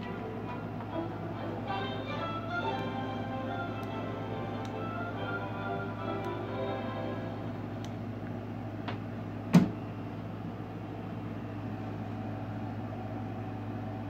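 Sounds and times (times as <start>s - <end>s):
music from portable speaker: 0.0s - 7.6s
steady low hum: 0.0s - 14.0s.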